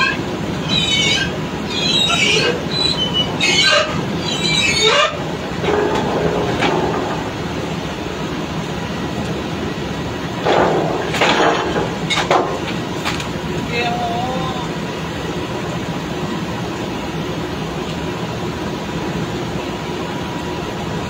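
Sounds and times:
high-pitched metallic squeals: 0.0 - 6.6
drilling machinery running: 0.0 - 21.0.

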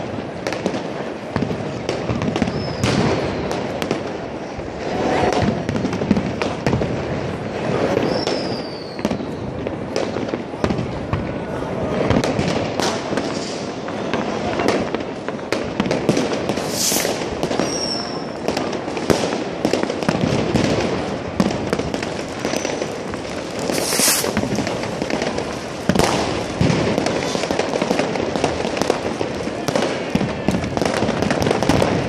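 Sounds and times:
fireworks crackling and banging: 0.0 - 32.0
firework hissing rushes: 16.5 - 18.4, 22.1 - 26.6.

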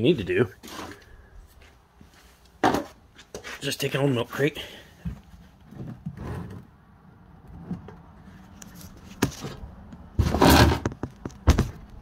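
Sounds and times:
plastic pan clunk and scrape: 2.6 - 3.0, 10.2 - 11.8.

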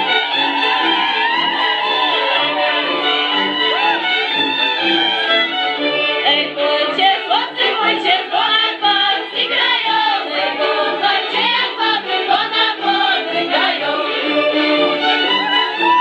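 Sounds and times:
women singing folk song in chorus: 6.2 - 14.9.

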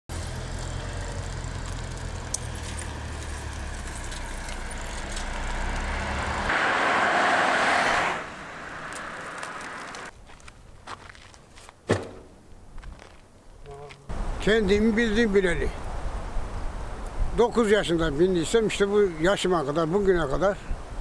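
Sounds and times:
vehicle engine hum: 0.1 - 10.1
vehicle rushing past: 0.4 - 10.1.

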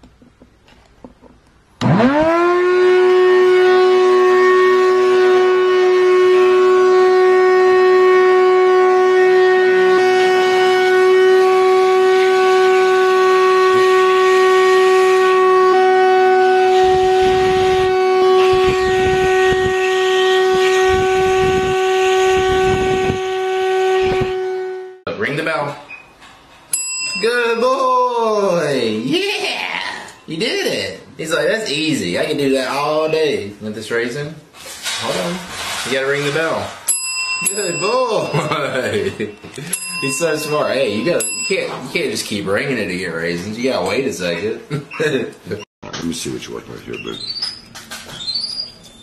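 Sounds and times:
power tool motor whine: 1.8 - 2.2.

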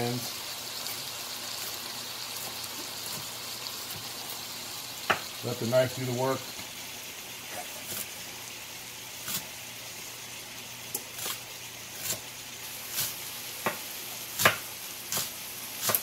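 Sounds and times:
meat sizzling in a pan: 0.0 - 16.0
knife chopping on cutting board: 13.0 - 13.8, 14.4 - 16.0.

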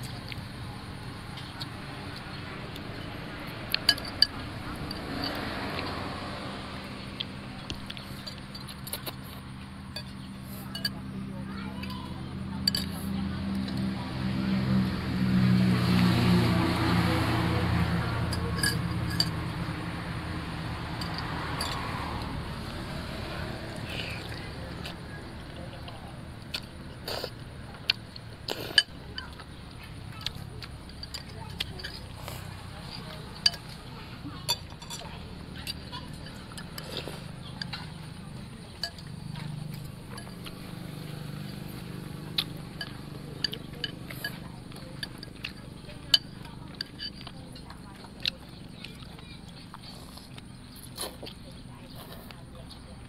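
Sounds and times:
low engine hum: 0.0 - 53.0
cutlery clinking on ceramic bowls: 3.7 - 6.0, 9.9 - 11.0, 12.6 - 13.8, 18.2 - 19.5, 32.8 - 40.5, 42.4 - 48.4.

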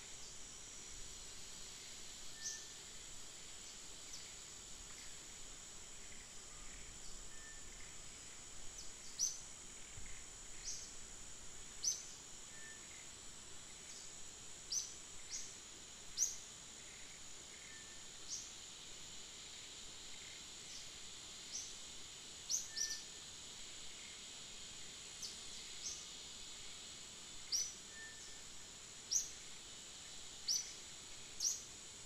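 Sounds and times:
high-pitched insect drone: 0.0 - 32.0
faint whistles: 7.3 - 7.7, 12.5 - 12.9, 27.9 - 28.4.

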